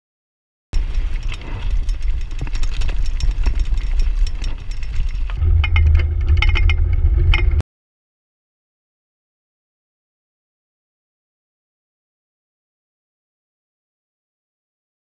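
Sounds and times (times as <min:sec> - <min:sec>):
bike rattling on loose ground: 0:00.8 - 0:07.6
wind rumble on microphone: 0:00.8 - 0:07.6.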